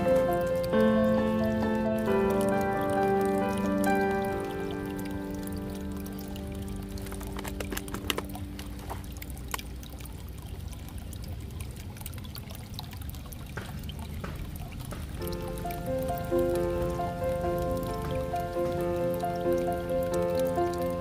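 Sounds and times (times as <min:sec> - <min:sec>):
background music: 0:00.0 - 0:09.9, 0:15.2 - 0:21.0
outdoor background hiss: 0:00.0 - 0:12.6, 0:13.6 - 0:21.0.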